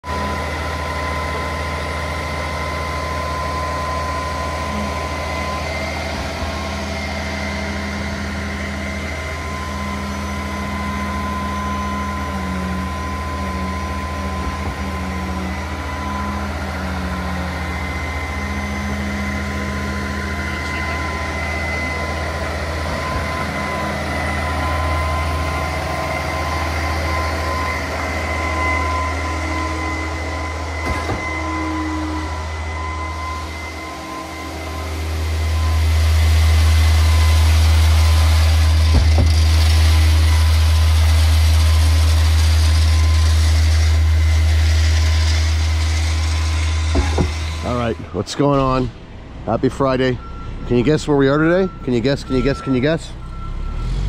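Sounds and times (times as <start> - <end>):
diesel truck engine droning: 0.0 - 54.0
thin steady whine: 0.0 - 54.0.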